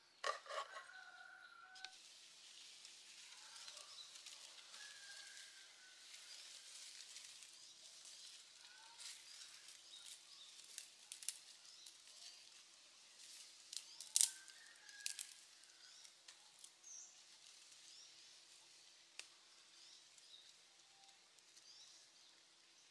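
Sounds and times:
fire crackling: 1.4s - 22.9s
twigs snapping: 9.0s - 12.1s, 13.6s - 16.7s.

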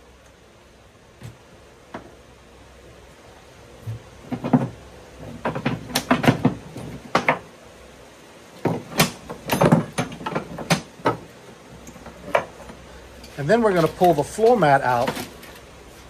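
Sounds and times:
metal rods clunking and rattling: 3.9s - 7.5s, 8.6s - 15.6s.

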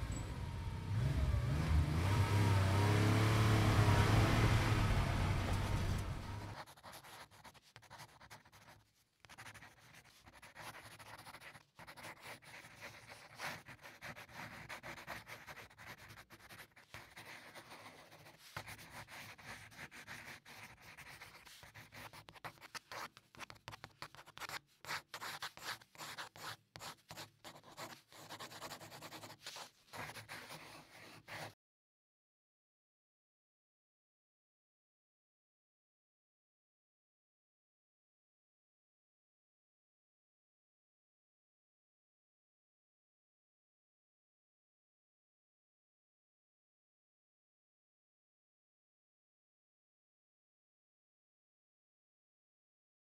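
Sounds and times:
pencil scratching on paper: 3.4s - 31.6s.

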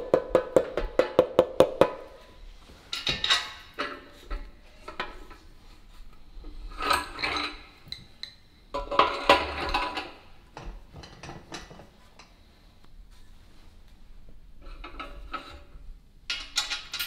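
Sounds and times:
metal parts and tools clinking: 2.9s - 5.4s, 16.3s - 17.0s.

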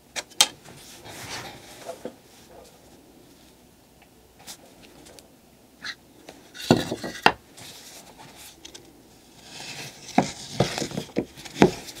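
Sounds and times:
board scraping rub: 0.8s - 2.7s, 9.3s - 12.0s.

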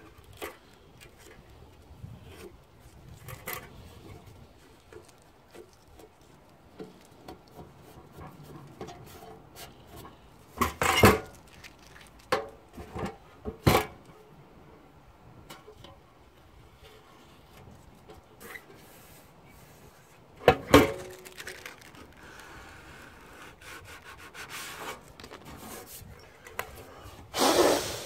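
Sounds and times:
cloth rubbing metal box: 23.2s - 26.2s.

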